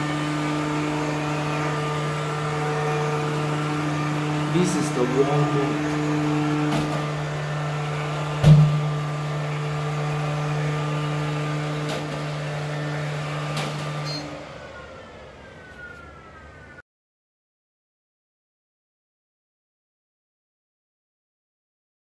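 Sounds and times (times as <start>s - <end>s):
robot vacuum motor humming: 0.0s - 16.0s
falling motor whine: 0.0s - 16.8s
loud knock: 8.4s - 8.9s.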